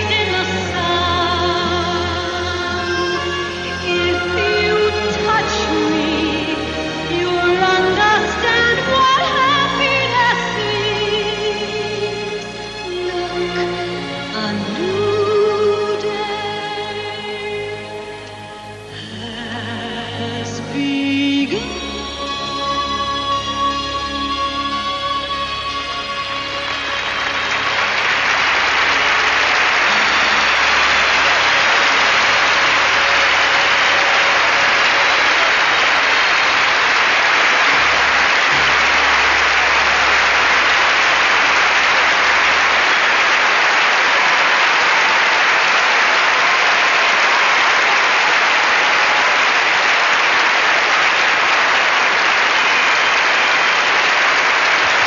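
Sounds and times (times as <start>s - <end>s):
music: 0.0s - 55.0s
crowd applauding: 25.9s - 55.0s.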